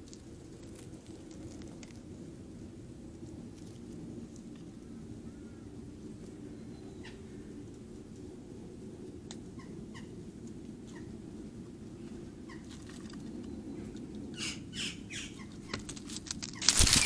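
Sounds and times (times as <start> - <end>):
magpies squawking: 14.4 - 17.0
bird wingbeats: 15.6 - 17.0.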